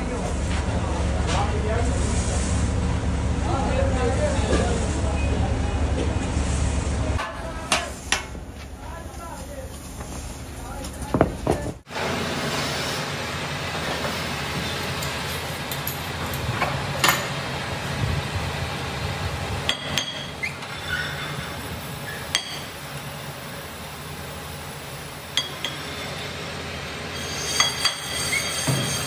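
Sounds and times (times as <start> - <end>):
steady low hum: 0.0 - 12.1.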